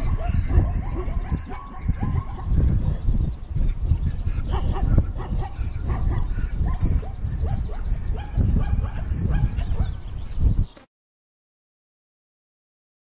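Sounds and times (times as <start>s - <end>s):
animal yelping cries: 0.0s - 3.0s.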